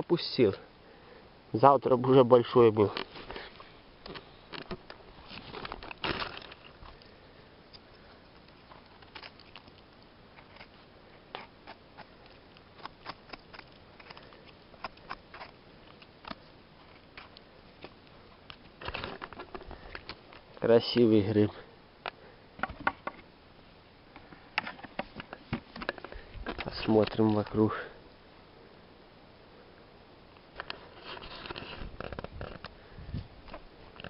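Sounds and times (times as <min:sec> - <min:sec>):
pine needles and twigs crackling: 0:01.6 - 0:22.3, 0:23.1 - 0:27.8.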